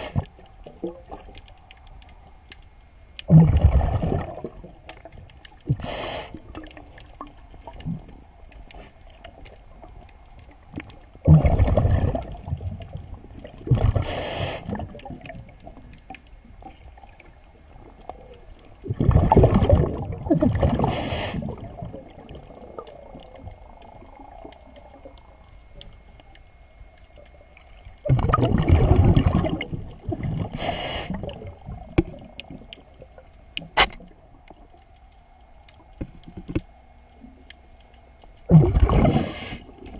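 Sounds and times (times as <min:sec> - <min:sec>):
regulator inhaling hiss: 0:00.0 - 0:00.2, 0:05.7 - 0:06.6, 0:14.0 - 0:14.8, 0:20.8 - 0:21.6, 0:30.4 - 0:31.4, 0:39.0 - 0:39.8
gurgling rush of exhaled bubbles: 0:03.3 - 0:08.1, 0:11.2 - 0:15.6, 0:18.6 - 0:25.4, 0:28.0 - 0:33.0, 0:38.5 - 0:39.9.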